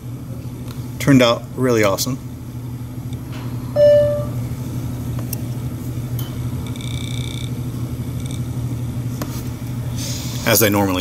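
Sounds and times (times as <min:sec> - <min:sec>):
low background hum: 0:00.0 - 0:11.0
faint high tone: 0:03.8 - 0:04.4
loud clear tone: 0:03.8 - 0:04.5.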